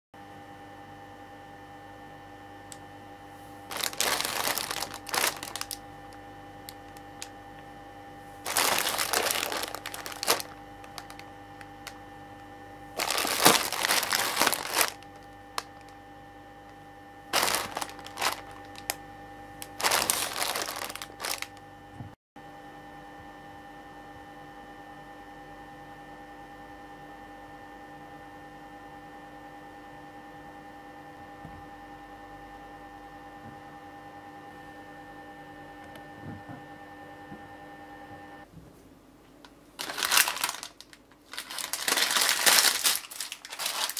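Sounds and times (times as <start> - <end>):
faint hum: 0.2 - 25.4, 31.2 - 43.9
plastic wrapper crinkling: 3.7 - 5.8, 8.5 - 12.0, 13.0 - 15.9, 17.3 - 19.0, 19.6 - 21.6, 39.8 - 43.9.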